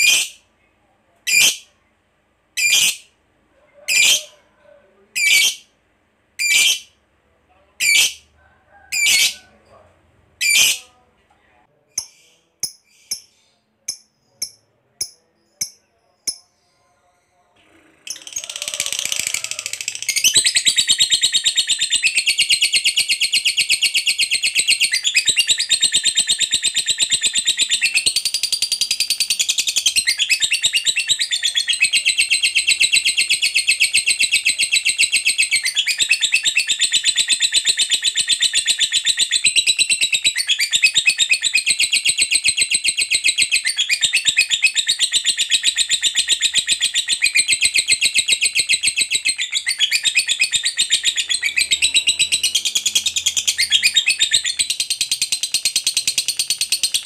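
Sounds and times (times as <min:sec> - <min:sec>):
bird chattering trill: 0:18.1 - 0:57.0.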